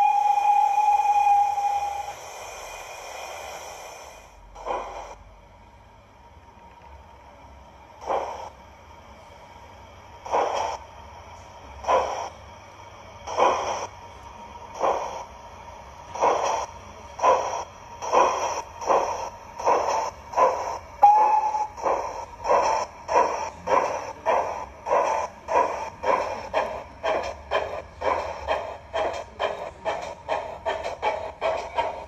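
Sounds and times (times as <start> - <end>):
model steam locomotive chuffs: 0.0 - 32.0
brief steady tone: 21.0 - 21.8.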